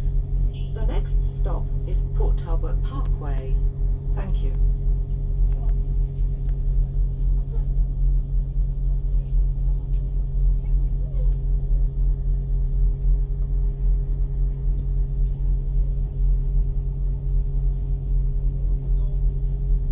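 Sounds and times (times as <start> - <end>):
diesel train engine idling: 0.0 - 7.2.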